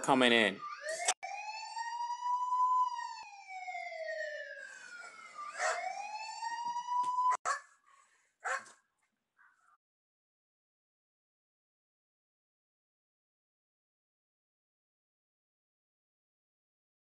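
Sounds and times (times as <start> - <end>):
police siren wailing: 0.2 - 7.4.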